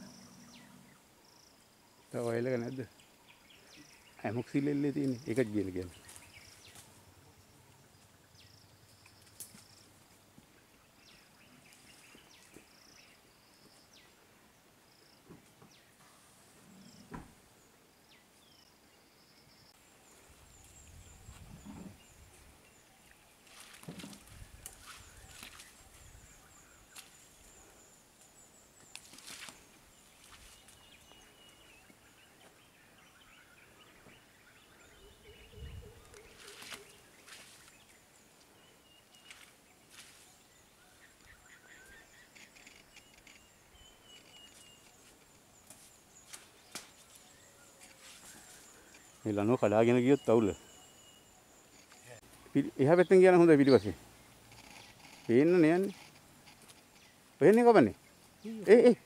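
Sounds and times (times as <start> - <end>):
soft knocks and rustles: 23.6 - 24.4.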